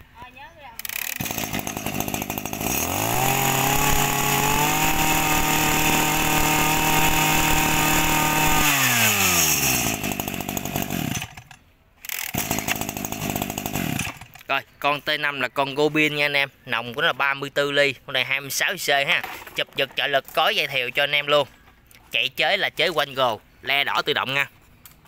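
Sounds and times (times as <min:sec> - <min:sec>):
brush-cutter engine revving: 0:00.8 - 0:14.5
rough uneven mechanical sound: 0:00.8 - 0:14.5.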